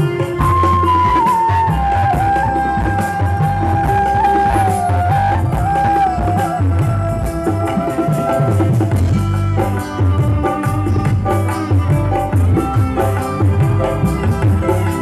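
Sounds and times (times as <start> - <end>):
transverse flute melody: 0.0 - 9.7
band playing instrumental music: 0.0 - 15.0.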